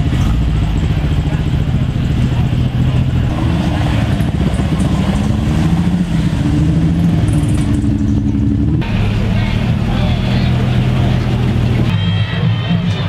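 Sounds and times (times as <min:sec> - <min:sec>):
sports car engines at low revs: 0:00.0 - 0:11.9.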